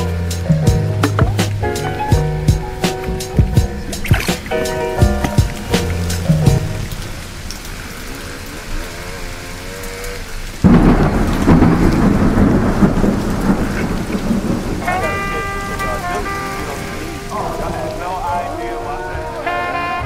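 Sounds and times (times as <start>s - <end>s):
thunder rumbling: 0.0s - 9.2s, 10.4s - 20.0s
steady hiss: 0.0s - 20.0s.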